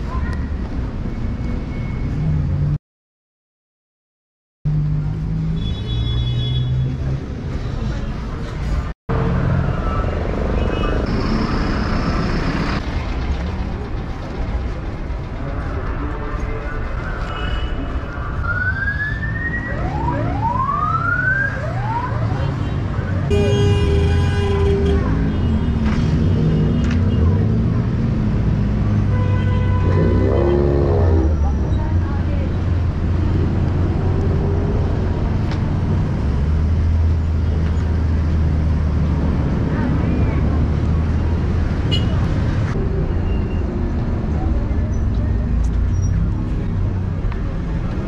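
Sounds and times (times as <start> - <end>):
cars and buses passing: 0.0 - 2.8, 4.7 - 48.0
street traffic rumble: 0.0 - 2.8, 4.7 - 48.0
vehicle siren sweeps: 18.2 - 22.5.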